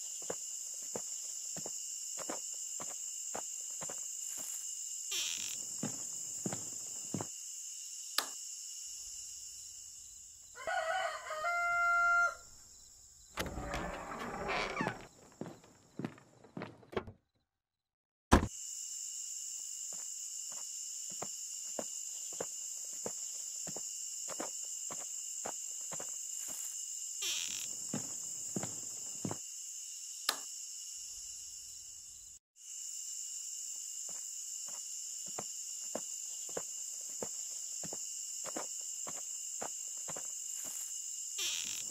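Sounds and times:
high-pitched insect chorus: 0.0 - 16.2, 18.6 - 41.9
rooster crowing: 10.6 - 12.6.

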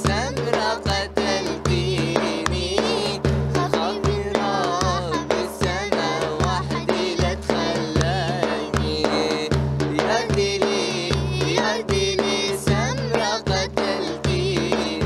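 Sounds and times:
girl singing: 0.0 - 9.4, 10.0 - 15.0
steady drum beat: 0.0 - 15.0.

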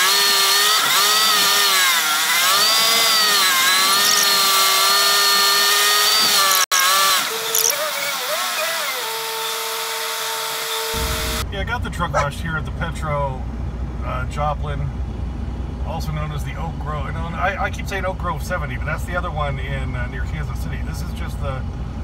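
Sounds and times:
truck engine and turbo whine: 0.0 - 9.0, 10.7 - 22.0.

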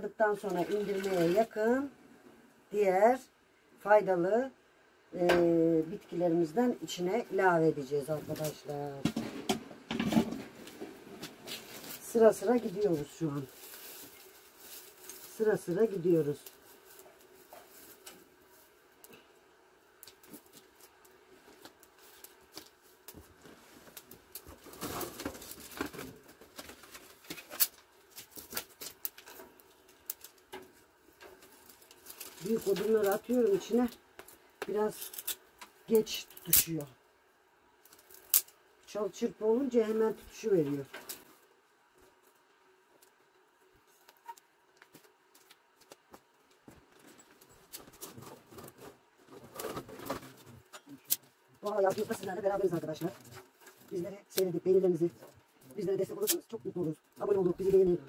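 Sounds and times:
wood fire crackling: 5.1 - 58.0
firewood being fed into fire: 20.0 - 36.8.

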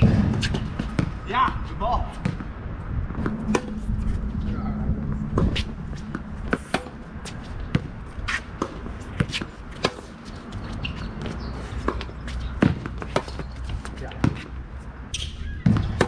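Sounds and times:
tennis ball bouncing on court: 0.0 - 1.6, 10.9 - 14.5
tennis ball off racket strings: 6.5 - 7.0.

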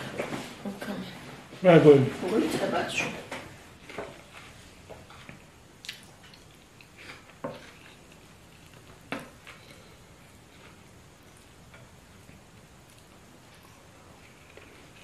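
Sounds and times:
soft chewing: 3.8 - 15.0.

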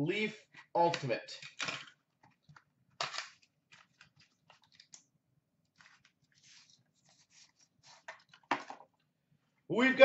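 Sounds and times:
cardboard rustling and scraping: 5.8 - 8.4.

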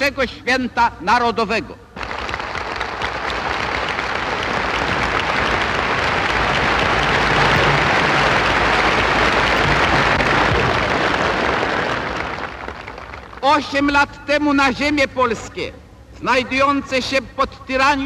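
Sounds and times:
crowd applauding: 2.0 - 13.8.

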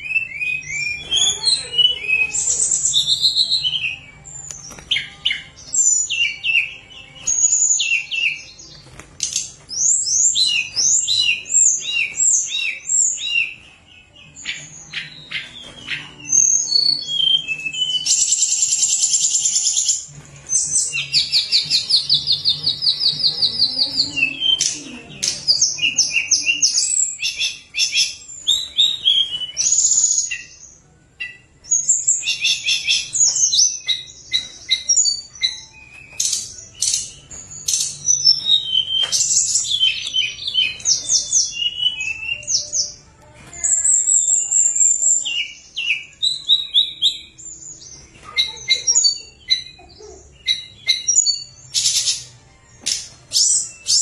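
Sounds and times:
bird singing trills and whistles: 0.0 - 54.0.

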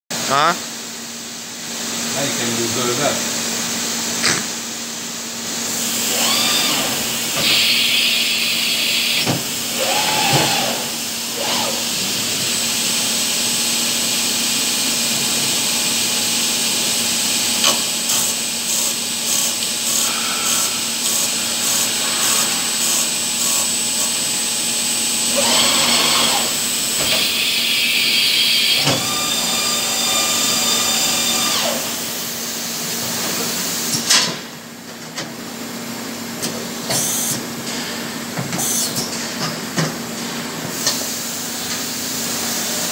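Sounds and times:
axis drives whining: 5.9 - 12.1, 25.2 - 32.0.

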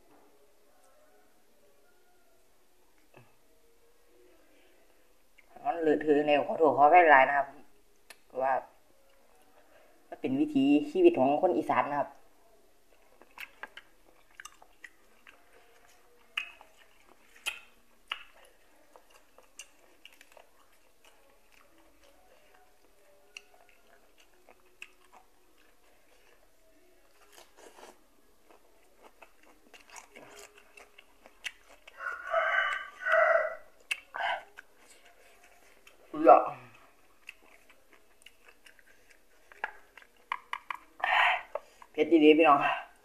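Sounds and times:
biting and chewing: 12.9 - 41.9.

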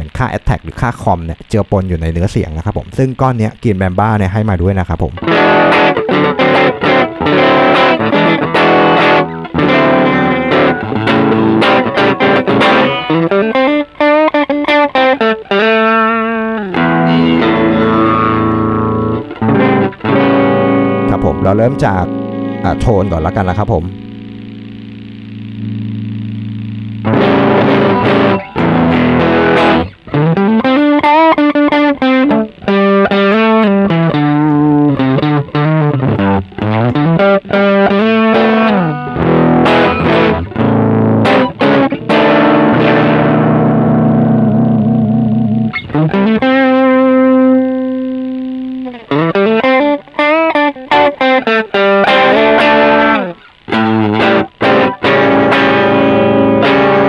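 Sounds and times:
distorted electric guitar: 0.0 - 57.0.

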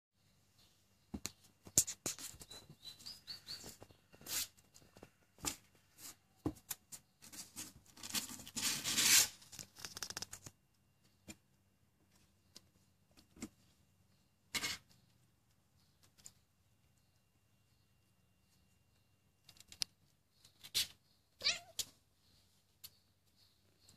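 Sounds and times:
claws clicking on tile: 9.5 - 10.6, 19.4 - 20.9.

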